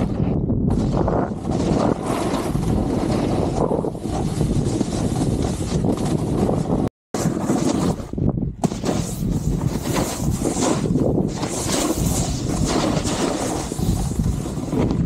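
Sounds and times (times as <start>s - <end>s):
snowboard scraping over snow: 0.0s - 15.0s
wind rushing over microphone: 0.0s - 15.0s.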